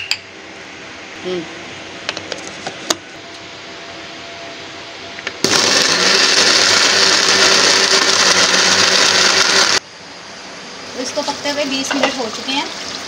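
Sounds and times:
electric mixer grinder running: 5.4 - 9.8.

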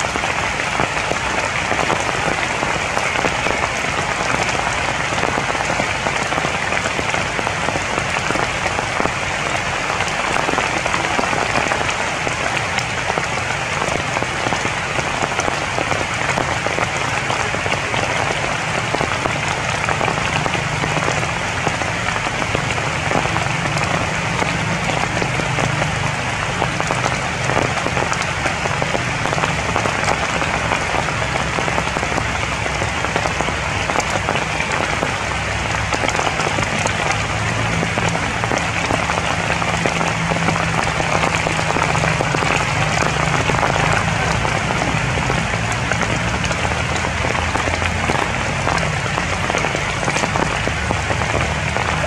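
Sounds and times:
rain falling on leaves: 0.0 - 52.0.

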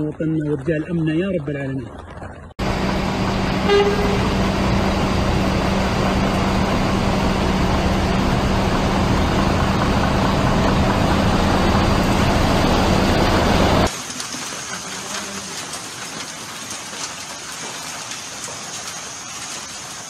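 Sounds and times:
running floodwater: 0.0 - 20.0
heavy rain: 1.9 - 20.0
vehicle engine idling: 2.6 - 13.9.

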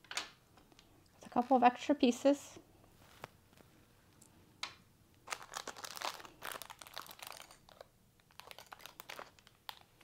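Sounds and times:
plastic bag crinkling: 1.2 - 1.9, 5.2 - 10.0.

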